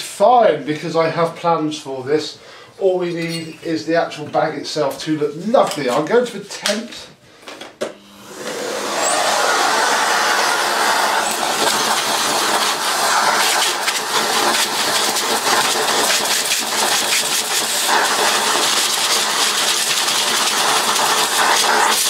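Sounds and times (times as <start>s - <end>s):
vacuum cleaner running: 7.5s - 22.0s.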